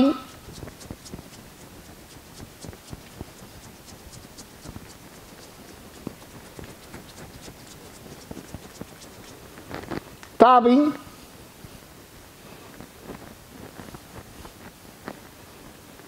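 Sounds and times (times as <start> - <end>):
hands slapping skin: 0.0 - 9.5.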